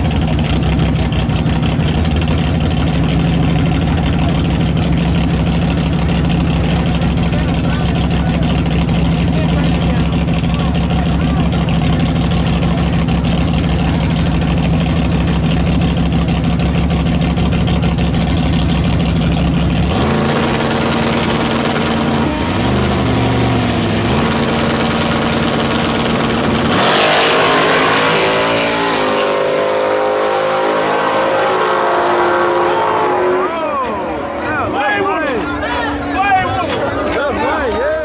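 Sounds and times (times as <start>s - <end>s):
race engines revving: 0.0s - 38.0s
engines surging at launch: 19.8s - 35.2s.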